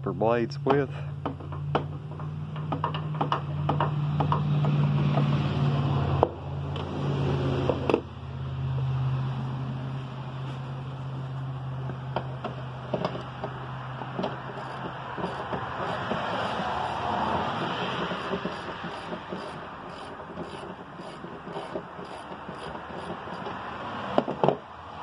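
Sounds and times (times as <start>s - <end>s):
ratchet clicking: 12.9s - 23.6s.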